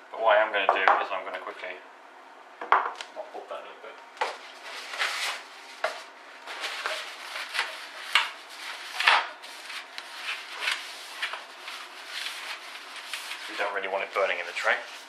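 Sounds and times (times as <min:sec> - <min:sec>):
paper towel scrubbing metal tray: 0:06.5 - 0:15.0.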